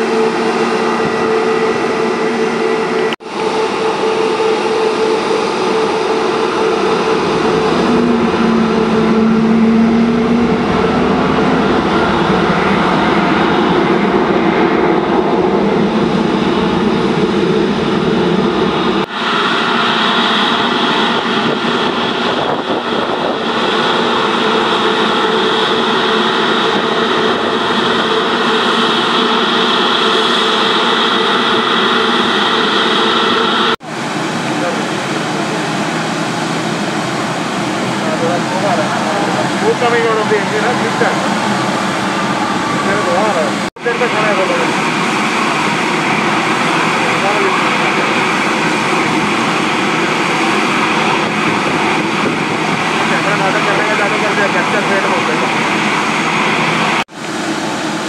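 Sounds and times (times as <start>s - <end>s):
jet engines whining: 0.0s - 58.0s.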